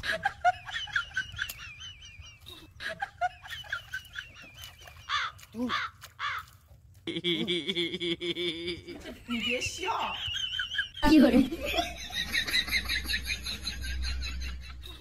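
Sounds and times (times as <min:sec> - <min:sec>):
warbling bird calls: 0:04.0 - 0:06.6
crow cawing: 0:05.1 - 0:06.6.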